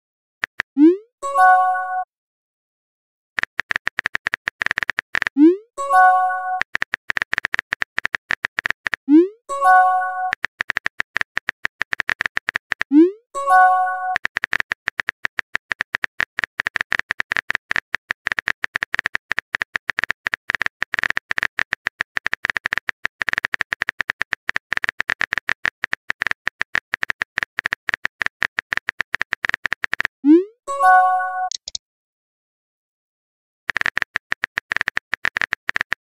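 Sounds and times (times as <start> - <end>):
rapid keyboard typing clicks: 3.4 - 13.0, 13.6 - 30.2, 31.5 - 31.8, 33.7 - 36.0
message chime: 30.7 - 31.6.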